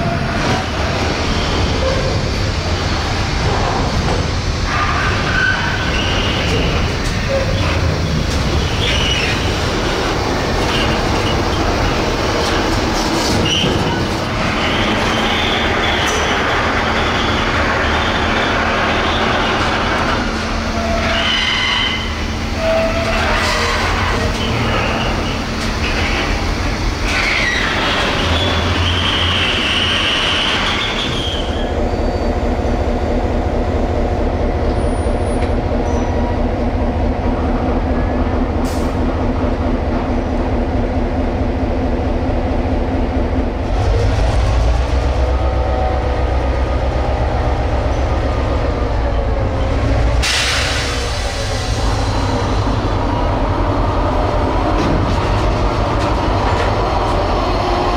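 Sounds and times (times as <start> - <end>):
diesel locomotive engine drone: 0.0 - 57.9
high metal squeal of wagons: 20.7 - 25.4, 27.0 - 32.3.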